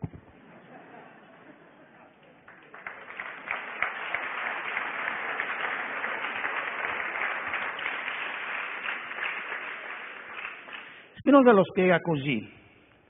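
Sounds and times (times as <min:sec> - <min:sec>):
audience applauding: 0:02.2 - 0:11.1.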